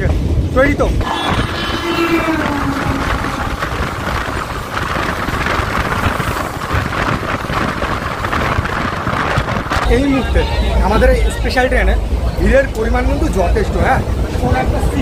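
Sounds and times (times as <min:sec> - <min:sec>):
train wheels rumbling on track: 0:00.0 - 0:15.0
electric train passing: 0:00.9 - 0:08.7
held tone dipping in pitch: 0:01.0 - 0:04.7.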